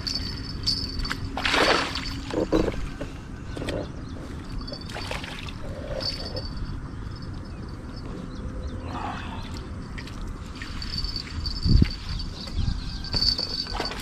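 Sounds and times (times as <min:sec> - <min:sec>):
fish thrashing in water: 0:01.0 - 0:03.0.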